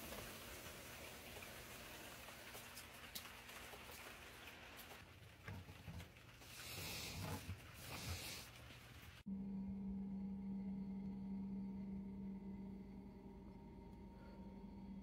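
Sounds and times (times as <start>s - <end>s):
faint crackles and ticks: 0.0s - 9.3s
steady low hum: 9.2s - 15.0s.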